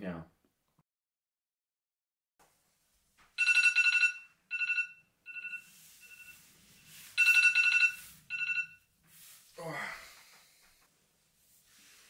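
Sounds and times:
electronic ringing trill: 3.4 - 6.5, 7.2 - 8.8.

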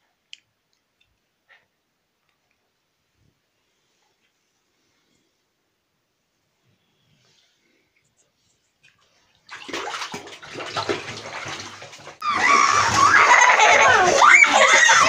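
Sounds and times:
water splashing in bathtub: 8.8 - 15.0.

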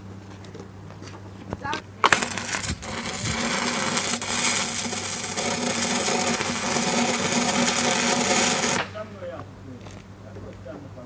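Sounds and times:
arc striking crack: 2.0 - 9.5
welding arc crackling and sizzling: 2.0 - 9.5
welder hum: 2.0 - 9.6.

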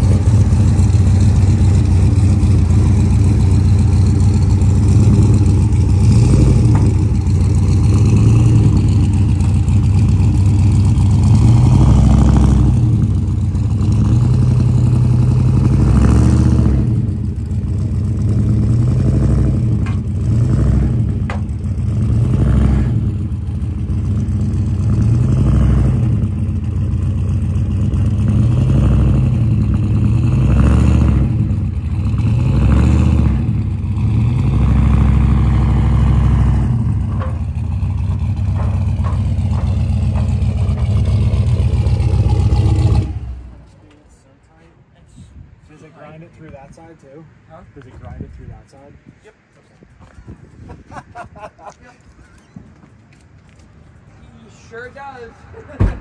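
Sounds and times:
truck engine revving: 0.0 - 43.7.

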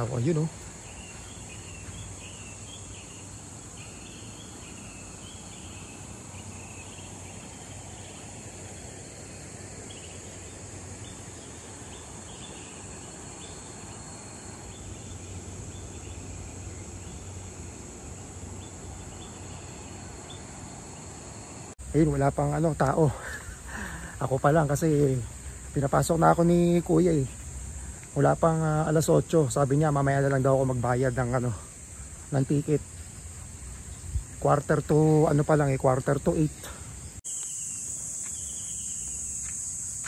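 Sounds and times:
bird chirps: 0.0 - 8.5, 22.0 - 39.5
high insect drone: 0.0 - 40.0.

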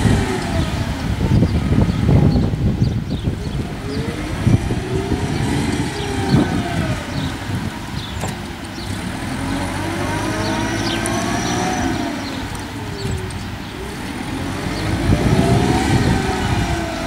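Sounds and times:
forklift engine running: 3.3 - 17.0.

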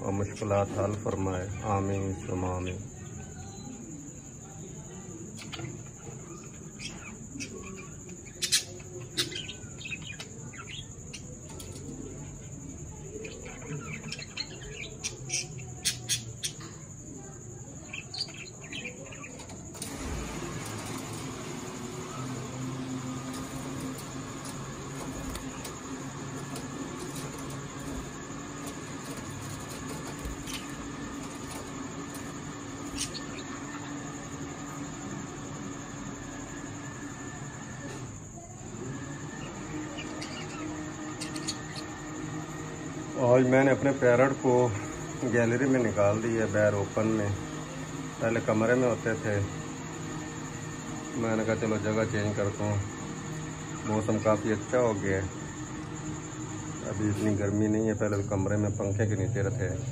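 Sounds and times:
low machine hum: 0.0 - 59.9
soft warbling chatter: 0.1 - 58.0
budgerigars chirping: 6.7 - 11.3, 28.8 - 34.4, 39.9 - 42.0.

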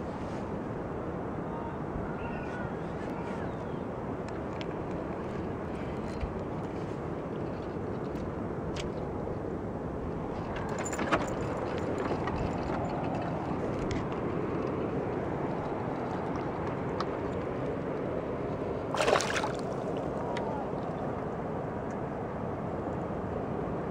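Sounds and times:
fish splashing at water surface: 18.9 - 20.1.

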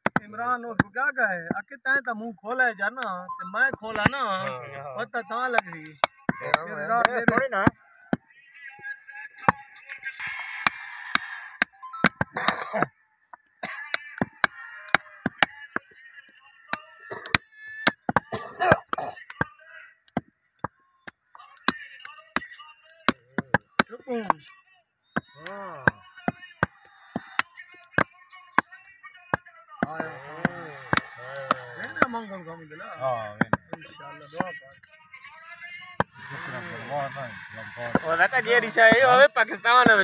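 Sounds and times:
cleaver chopping meat on wood: 0.0 - 0.9, 13.9 - 15.8, 25.2 - 28.1, 29.8 - 32.2, 33.4 - 33.8.

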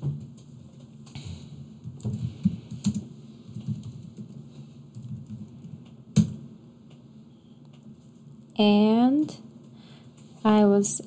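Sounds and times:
computer keyboard typing: 1.8 - 7.0.

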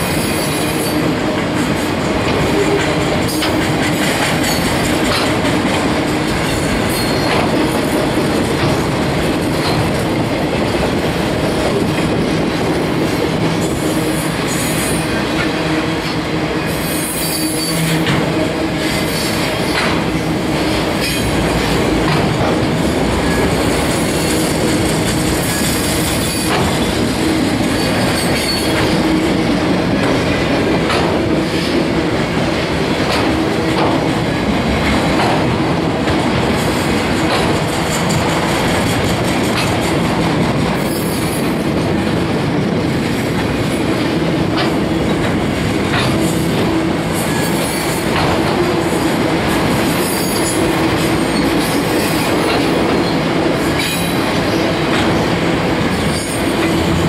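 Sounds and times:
train wheels rumbling on rail: 0.0 - 57.0
wheels clicking over rail joints: 0.3 - 12.7, 32.9 - 57.0
high-pitched wheel squeal: 16.8 - 18.0.

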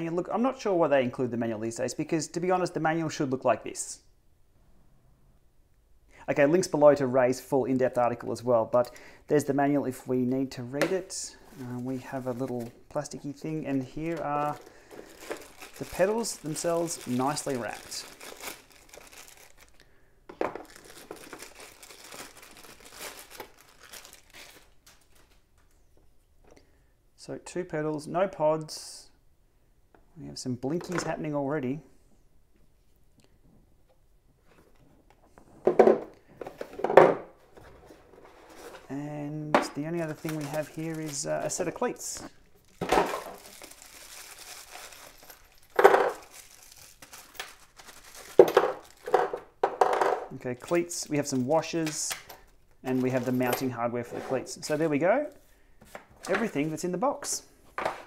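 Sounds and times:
plastic wrapping crinkling: 11.5 - 19.8, 20.5 - 25.6, 39.8 - 49.6.

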